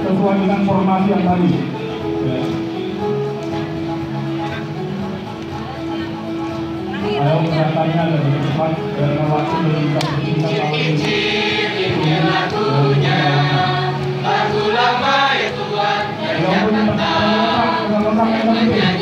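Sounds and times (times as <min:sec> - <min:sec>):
choir singing folk song: 0:10.1 - 0:19.0.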